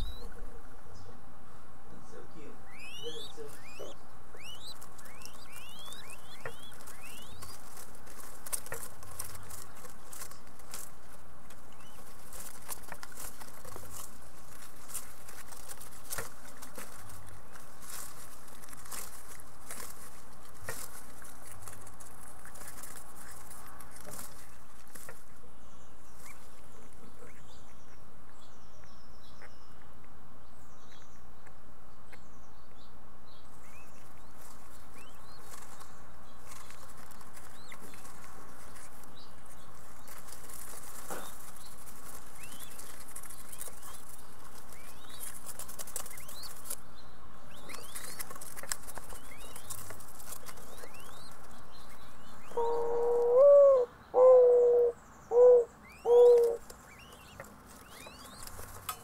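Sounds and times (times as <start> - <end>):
birds fluttering wings: 4.4 - 25.4, 33.9 - 46.8, 47.5 - 52.6, 56.3 - 59.0.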